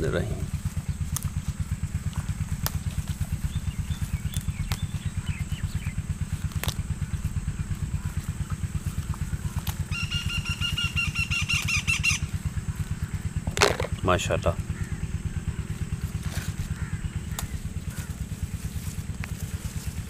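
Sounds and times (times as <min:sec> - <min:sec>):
engine idling fast: 0:00.0 - 0:20.0.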